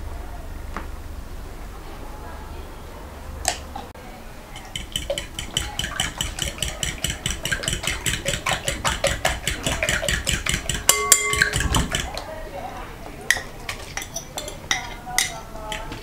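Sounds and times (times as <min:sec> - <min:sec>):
fork beating eggs in glass bowl: 0:04.4 - 0:12.4, 0:13.2 - 0:16.0
glass bowl ringing: 0:09.8 - 0:12.2.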